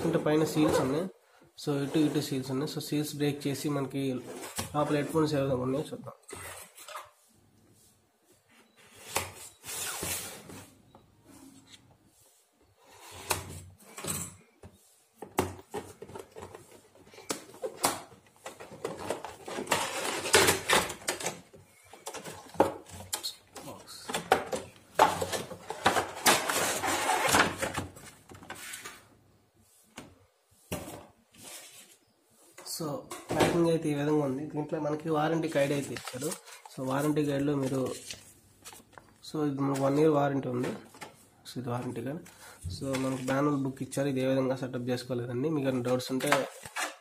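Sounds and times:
cardboard and plastic rustling: 15.2 - 29.1, 35.4 - 41.2, 42.2 - 43.6.

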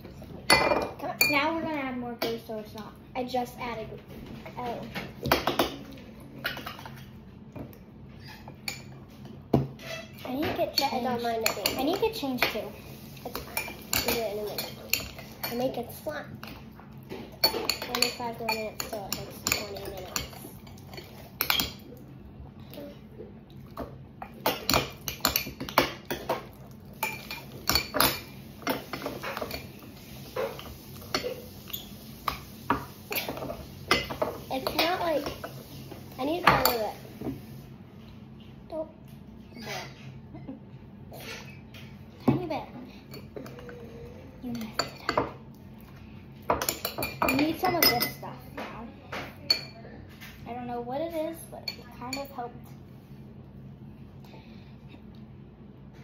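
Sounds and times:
utensil clinking against a bowl: 5.0 - 21.8, 23.7 - 35.6, 46.4 - 50.4.

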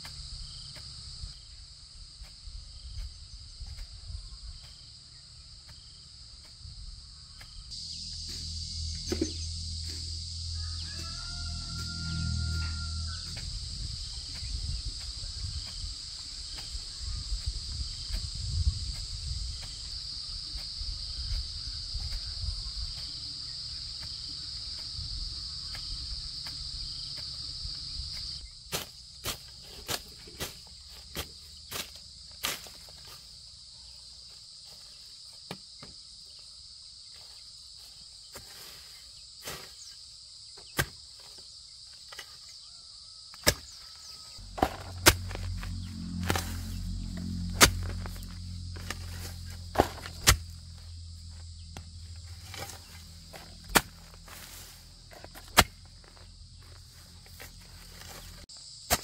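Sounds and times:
high insect buzzing: 7.0 - 28.5, 43.4 - 58.8
low rumble: 7.7 - 11.0, 44.4 - 58.5.

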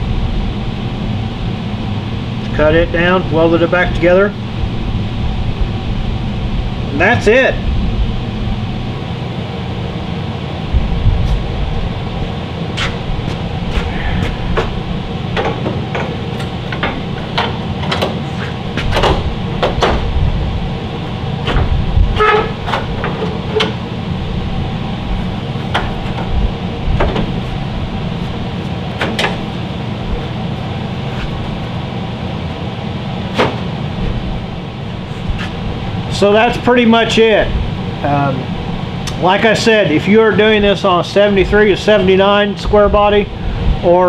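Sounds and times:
steady background hum: 0.0 - 44.0
clicks and knocks of truck grille: 14.5 - 20.2.

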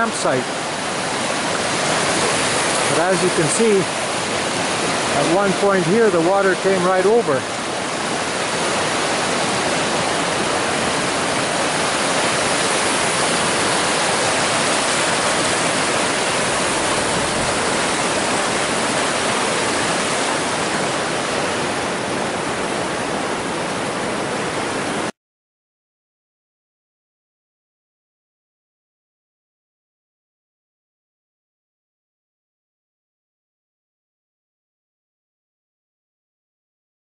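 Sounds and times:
white water rushing: 0.0 - 25.2.

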